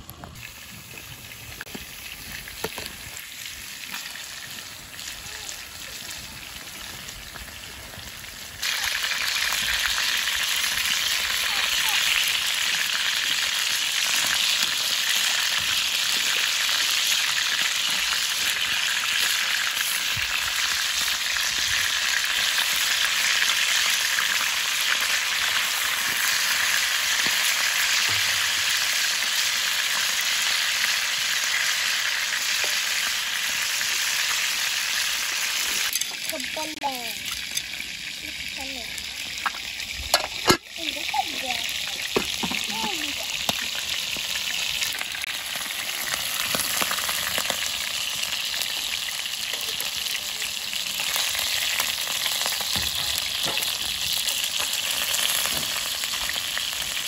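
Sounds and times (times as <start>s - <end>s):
chicken sizzling in hot oil: 0.0s - 57.0s.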